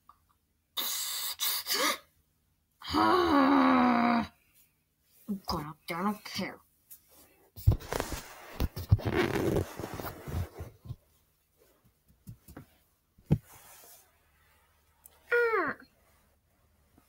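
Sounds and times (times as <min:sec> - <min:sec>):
rustling on carpet: 0:06.7 - 0:14.9.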